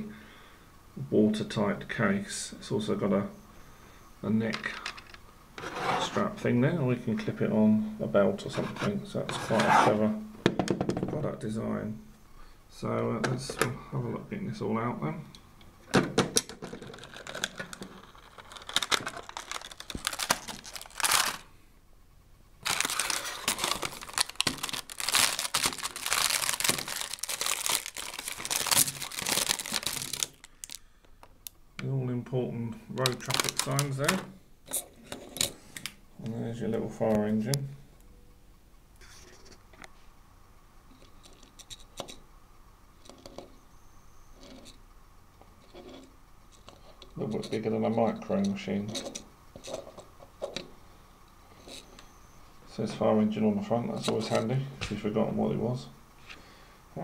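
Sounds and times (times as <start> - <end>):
plastic case clicking and rattling: 16.2 - 21.0
plastic bag crinkling: 16.6 - 21.5, 22.6 - 30.9, 33.0 - 34.1.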